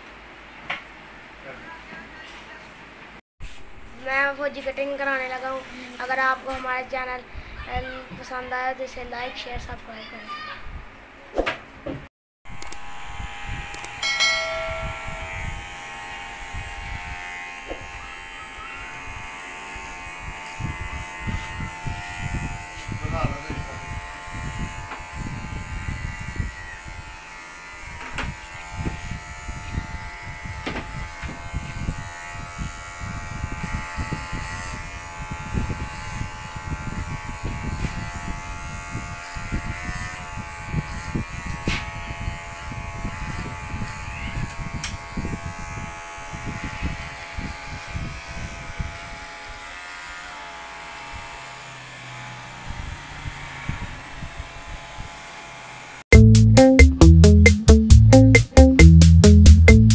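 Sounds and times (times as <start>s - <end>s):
electric hair clipper humming: 12.5s - 59.9s.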